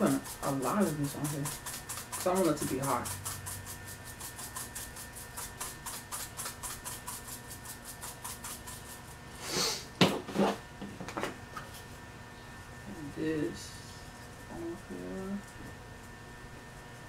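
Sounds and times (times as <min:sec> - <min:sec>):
pepper shaker rattling: 0:00.0 - 0:09.2
short hiss: 0:09.4 - 0:09.9.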